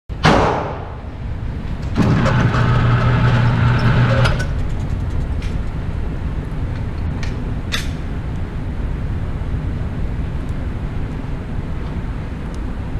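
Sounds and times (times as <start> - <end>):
loud gunshot bang: 0.2 - 1.0
sharp knocks: 0.2 - 1.0
motorized target carrier humming: 0.8 - 8.5.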